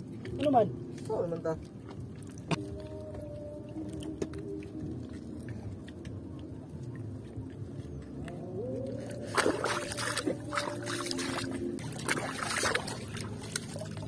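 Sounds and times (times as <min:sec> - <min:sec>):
boat engine droning: 0:01.8 - 0:14.0
hand splashing in seawater: 0:09.1 - 0:14.0.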